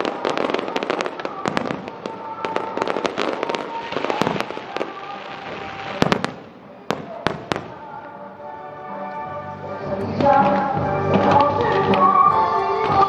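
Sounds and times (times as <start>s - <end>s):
fireworks bangs and crackling: 0.0s - 8.1s.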